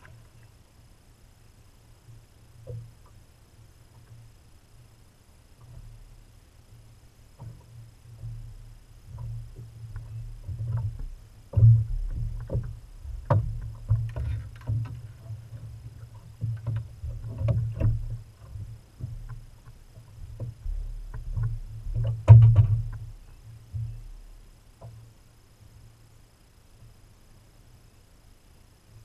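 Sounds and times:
thumps and knocks on boat hull: 9.1s - 24.0s.

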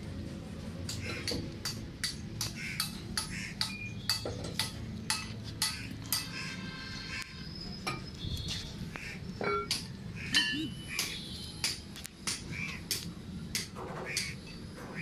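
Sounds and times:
hammer striking metal: 0.9s - 6.4s.

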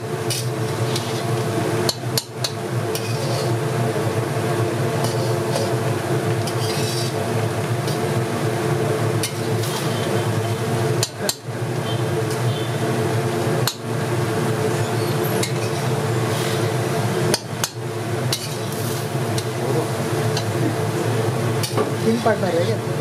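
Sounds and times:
steady hum: 0.0s - 23.0s
metal pots and utensils clinking: 1.9s - 3.5s, 5.0s - 5.8s, 6.4s - 7.2s, 9.2s - 10.1s, 15.4s - 15.9s, 17.3s - 18.8s.

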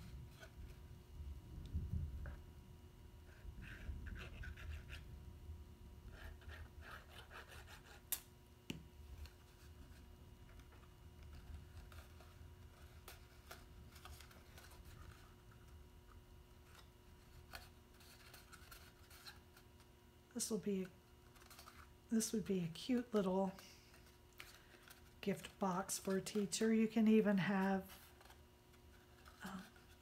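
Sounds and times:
cardstock rustling and rubbing: 3.2s - 5.2s, 9.1s - 20.0s, 20.8s - 30.0s.

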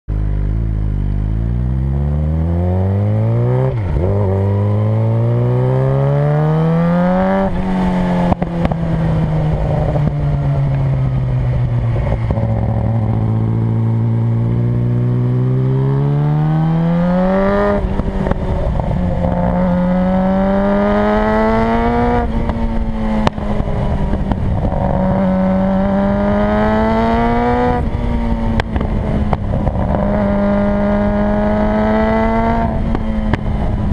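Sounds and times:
motorcycle engine revving: 0.2s - 33.9s
wind on microphone: 17.2s - 33.9s
exhaust backfire pops: 28.5s - 30.1s.

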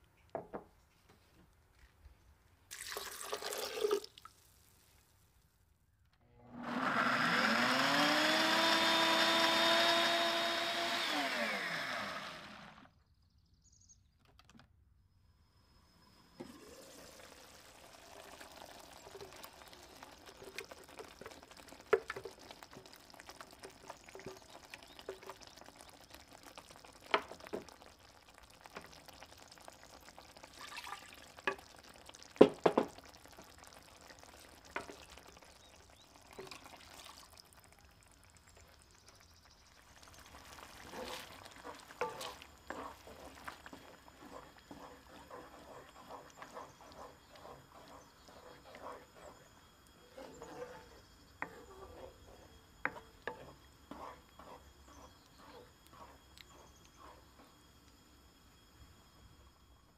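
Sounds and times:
puree pouring into pan: 2.7s - 4.8s, 16.4s - 56.5s
blender motor whine: 6.4s - 13.0s.

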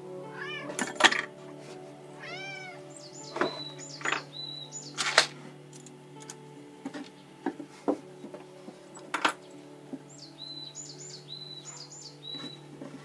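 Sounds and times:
cat meowing: 0.3s - 0.8s, 2.2s - 2.8s.

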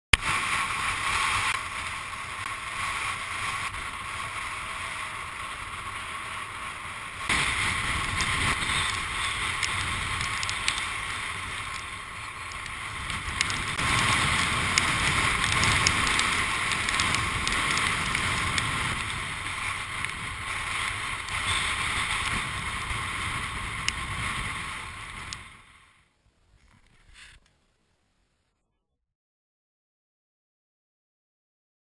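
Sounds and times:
strong wind buffeting microphone: 7.3s - 25.8s.

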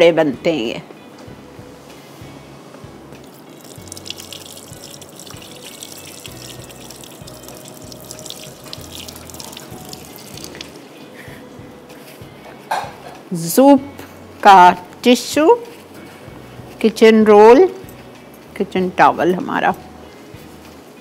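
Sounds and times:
food deep-frying in oil: 3.4s - 10.7s.

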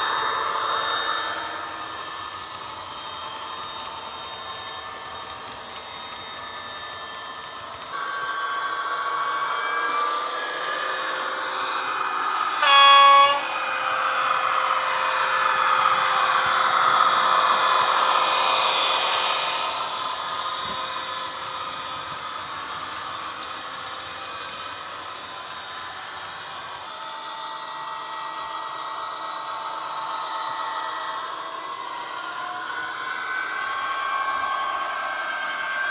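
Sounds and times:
model locomotive horn blast: 7.9s - 10.5s, 12.6s - 14.4s.

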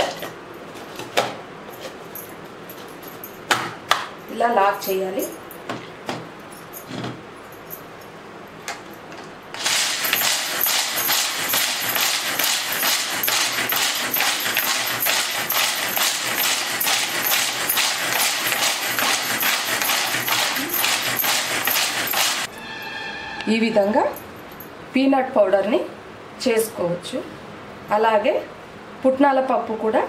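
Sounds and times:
pull-cord chopper grinding nuts: 9.6s - 22.5s.

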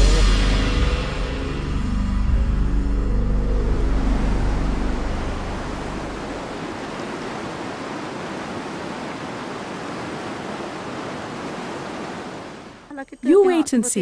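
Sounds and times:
low musical drone: 0.0s - 6.7s
river rushing over boulders: 5.0s - 12.9s.

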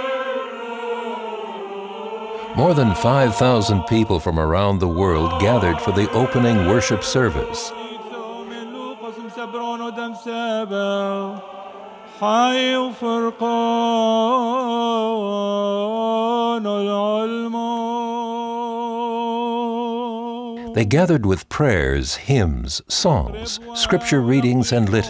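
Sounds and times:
man chanting a prayer: 2.5s - 10.4s, 20.6s - 25.0s.

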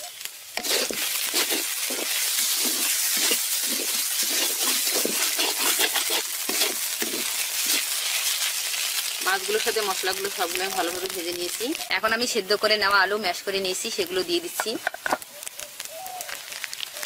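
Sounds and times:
frying sizzle: 0.0s - 17.0s
spatula scraping metal pan: 0.6s - 8.4s.

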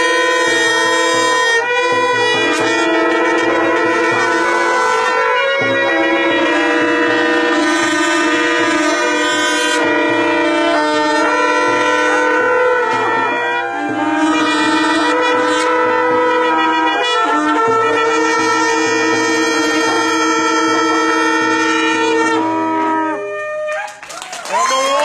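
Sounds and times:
shofars blowing in chorus: 0.0s - 25.0s.

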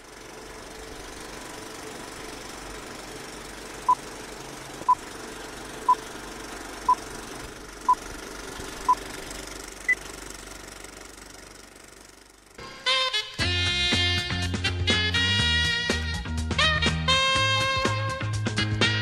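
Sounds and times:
film projector clatter: 0.0s - 12.6s.

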